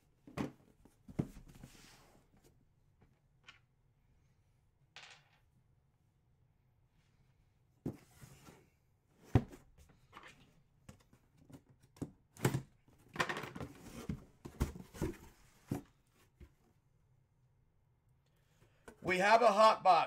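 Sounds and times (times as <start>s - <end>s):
cardboard box knocks and thumps: 13.6s - 16.5s
cardboard scraping and rustling: 13.6s - 16.5s.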